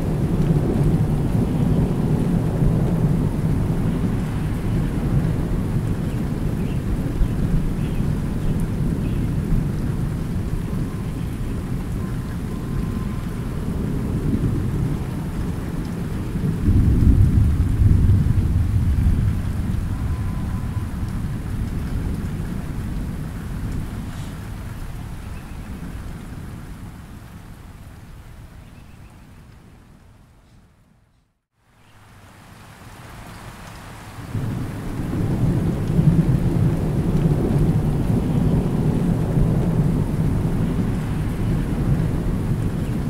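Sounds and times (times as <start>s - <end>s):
thunder rumbling: 0.0s - 26.8s, 34.3s - 43.0s
light rain: 0.0s - 43.0s.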